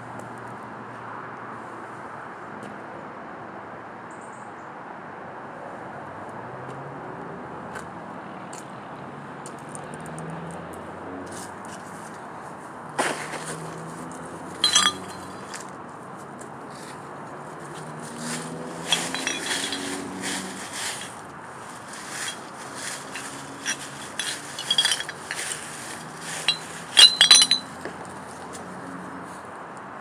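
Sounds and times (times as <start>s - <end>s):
glass bottles clinking: 14.6s - 15.6s, 18.8s - 21.1s, 22.1s - 27.8s.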